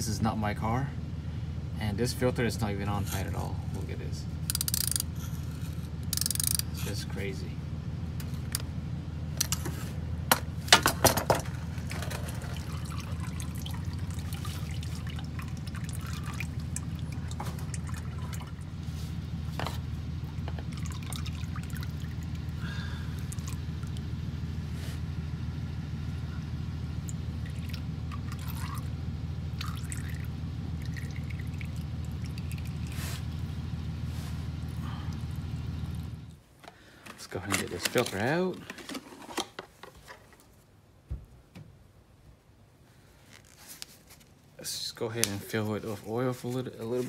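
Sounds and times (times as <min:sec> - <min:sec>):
steady low hum: 0:00.0 - 0:47.0
filter and wrench clicks and knocks: 0:04.5 - 0:05.1, 0:06.1 - 0:06.6
oil pouring and dripping: 0:11.4 - 0:24.6, 0:26.3 - 0:36.4.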